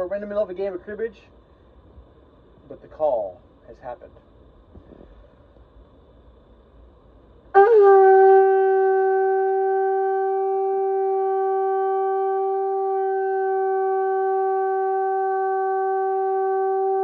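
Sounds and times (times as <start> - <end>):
conch shell horn note: 7.6 - 17.0.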